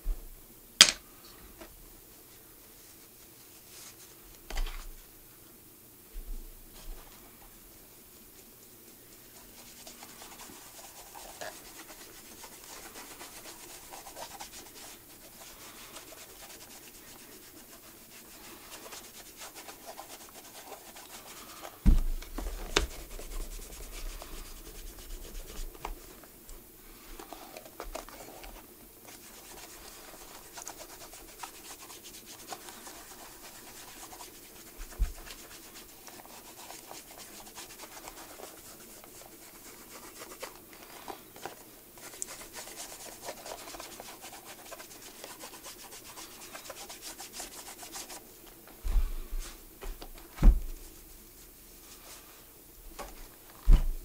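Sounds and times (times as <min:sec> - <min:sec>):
scratching and rubbing on shoe: 0:08.2 - 0:21.8, 0:22.4 - 0:26.2, 0:27.0 - 0:48.3
thump: 0:21.8 - 0:22.3, 0:50.4 - 0:50.7, 0:53.6 - 0:54.0.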